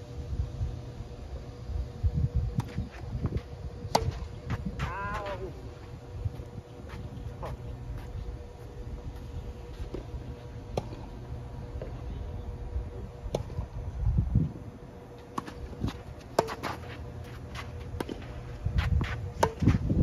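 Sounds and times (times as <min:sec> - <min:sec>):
faint hum: 0:00.0 - 0:20.0
steady low rumble: 0:00.0 - 0:20.0
tennis ball struck by rackets: 0:03.9 - 0:04.6, 0:16.3 - 0:16.8, 0:19.4 - 0:19.8.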